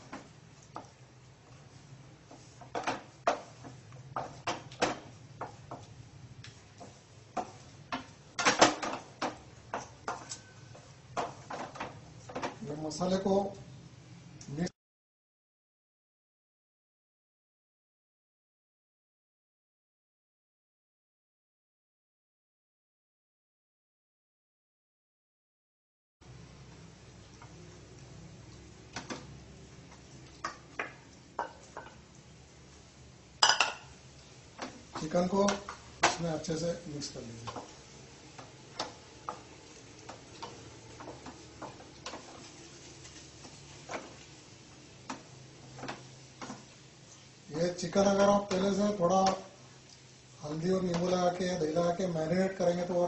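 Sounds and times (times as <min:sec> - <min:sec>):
utensils and cookware clattering: 0:06.8 - 0:12.6, 0:33.4 - 0:34.0
spoon tapping and scraping: 0:08.8 - 0:12.5.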